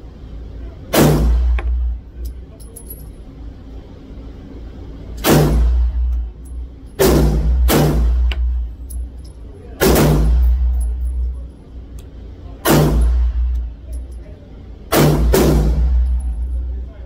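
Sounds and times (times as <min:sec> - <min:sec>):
echoing pistol shots: 0:07.0 - 0:08.5, 0:09.8 - 0:10.5, 0:14.9 - 0:16.0.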